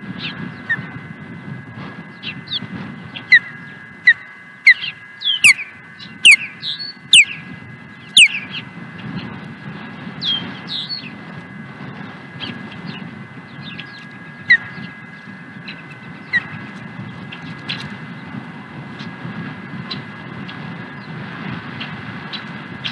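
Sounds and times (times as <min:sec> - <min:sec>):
osprey whistled chirps: 0:02.0 - 0:09.3, 0:10.2 - 0:11.2, 0:12.4 - 0:17.9.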